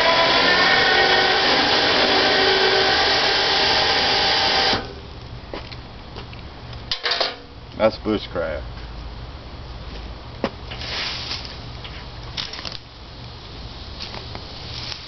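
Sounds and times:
electric winch motor whine: 0:00.0 - 0:05.0.

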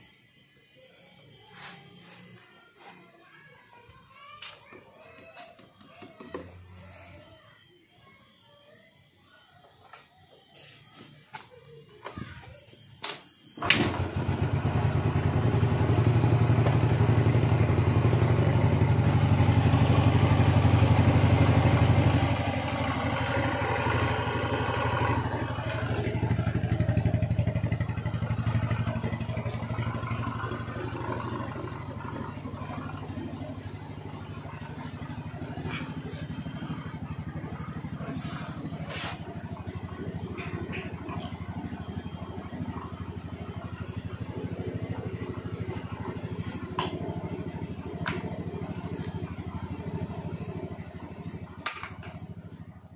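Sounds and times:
scooter engine running: 0:03.7 - 0:07.3, 0:12.0 - 0:52.9.

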